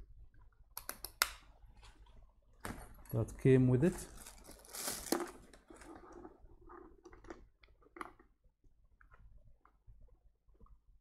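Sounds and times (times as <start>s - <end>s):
cables rustling: 2.7s - 7.4s.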